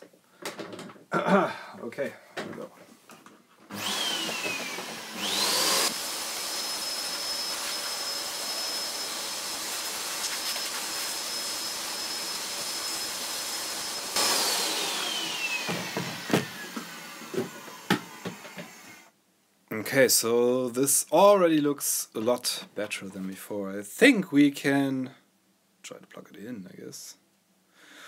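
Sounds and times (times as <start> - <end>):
vacuum cleaner motor whine: 3.7 - 19.1.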